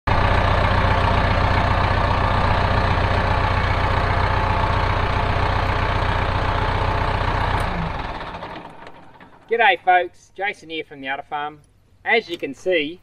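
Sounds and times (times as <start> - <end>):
tractor diesel engine idling: 0.1 - 9.5.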